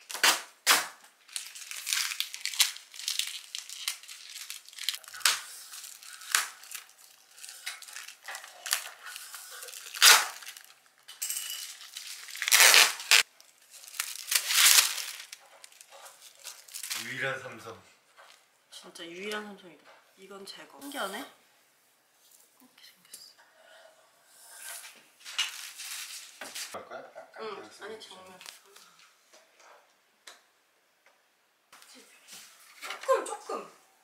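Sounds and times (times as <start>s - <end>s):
tape tearing: 0.0s - 10.8s, 11.6s - 17.1s
plastic wrap crinkling: 0.0s - 17.3s, 25.2s - 26.8s.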